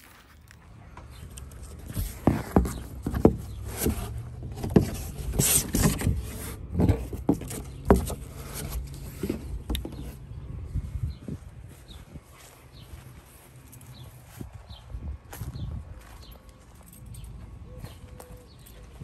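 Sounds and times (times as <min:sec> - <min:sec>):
plastic and foam rustling: 0:01.6 - 0:10.2
cardboard knocks and taps: 0:02.0 - 0:05.1, 0:06.8 - 0:10.2.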